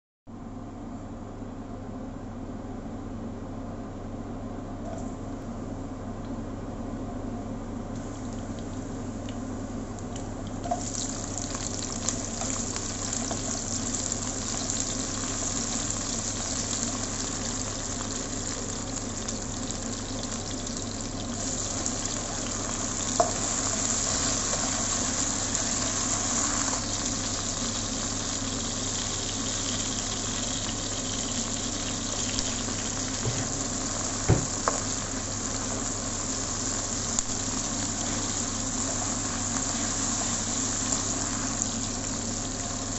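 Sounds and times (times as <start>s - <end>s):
vegetables sizzling in hot oil: 10.6s - 42.9s.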